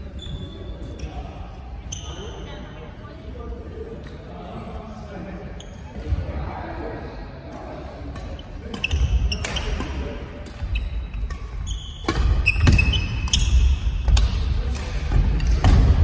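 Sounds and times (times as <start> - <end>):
sneaker squeaks: 0.0 - 2.7, 5.5 - 6.0, 8.2 - 14.4
rackets striking shuttlecock: 8.1 - 16.0.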